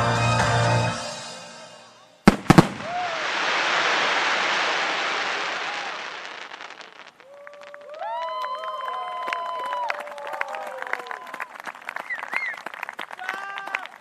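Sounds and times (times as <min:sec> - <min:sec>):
firework shells bursting: 0:02.3 - 0:07.8
firework crackling: 0:02.3 - 0:09.1.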